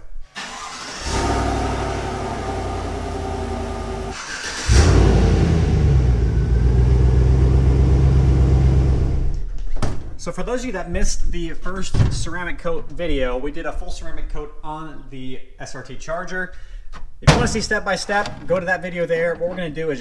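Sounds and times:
pickup truck engine running: 0.5 - 9.2
louder engine running: 1.1 - 9.3.

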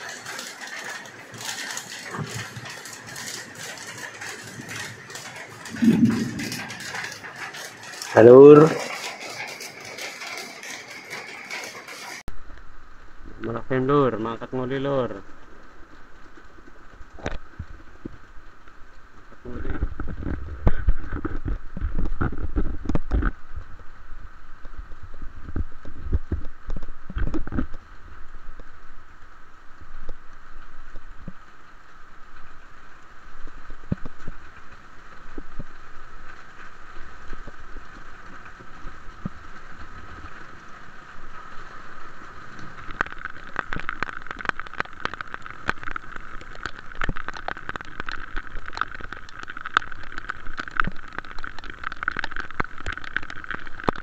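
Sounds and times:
rain drops ticking: 0.0 - 54.0
low rumbling on microphone: 5.6 - 7.5.

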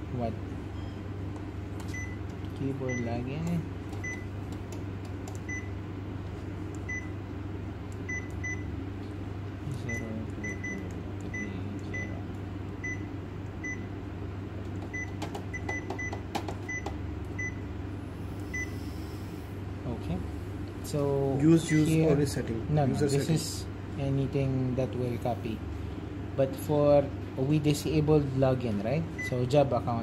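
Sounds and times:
steady low hum: 0.0 - 30.0
short high key-press beeps: 1.9 - 2.2, 4.0 - 4.3, 5.4 - 5.7, 6.9 - 7.1, 8.1 - 8.7, 9.9 - 12.2, 14.9 - 17.6.

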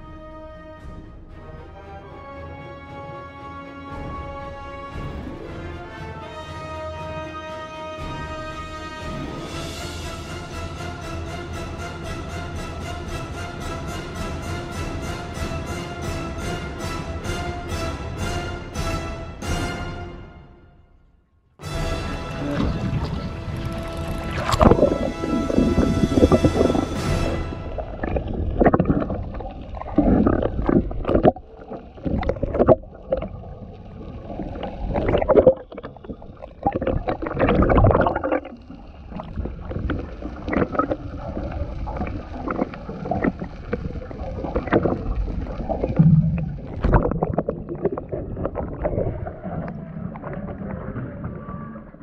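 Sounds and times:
muffled underwater rushing and sloshing: 22.0 - 52.0.

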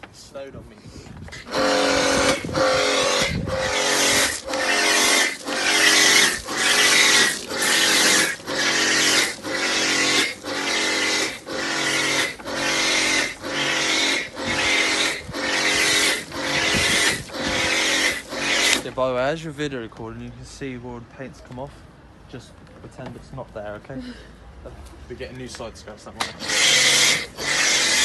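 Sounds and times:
pressure washer pump hum: 1.2 - 19.0, 26.1 - 28.0.

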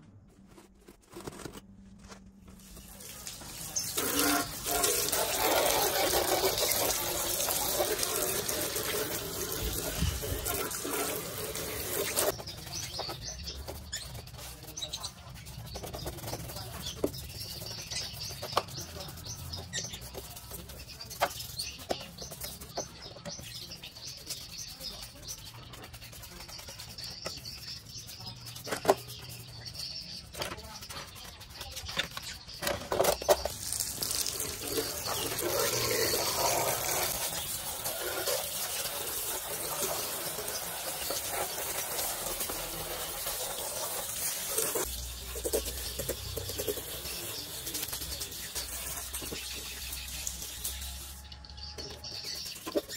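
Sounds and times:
brush scrubbing plastic: 0.1 - 52.9
hose water spraying on plastic: 2.5 - 31.8, 33.2 - 52.9.

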